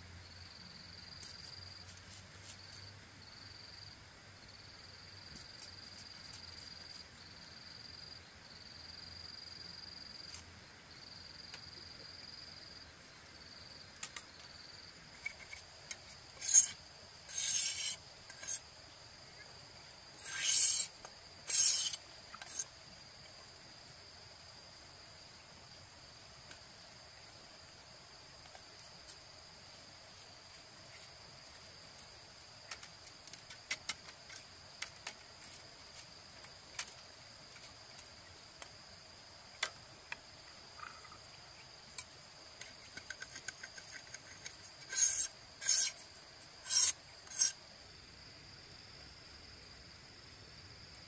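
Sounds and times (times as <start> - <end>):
high insect tone: 0.1 - 51.0
bamboo strips clicking: 14.0 - 14.5, 32.6 - 35.6, 36.4 - 38.7
knife scraping bamboo strips: 15.1 - 18.7, 20.1 - 22.8, 28.4 - 38.1, 42.0 - 47.6.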